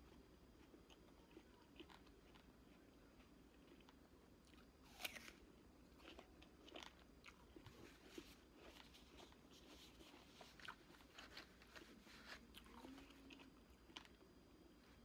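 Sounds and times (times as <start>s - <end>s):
chewing crisp fruit: 0.0s - 15.0s.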